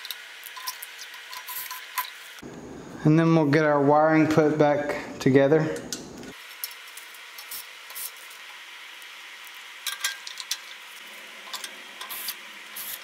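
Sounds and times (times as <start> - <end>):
steady hiss: 6.3 - 13.0.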